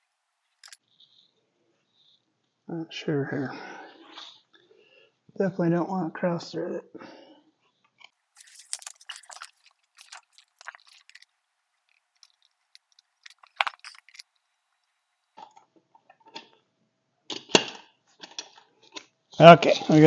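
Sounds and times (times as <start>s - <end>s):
metal nuts threaded onto studs: 0.0s - 0.8s, 8.4s - 15.3s
sharp metal clinks: 8.4s - 14.4s.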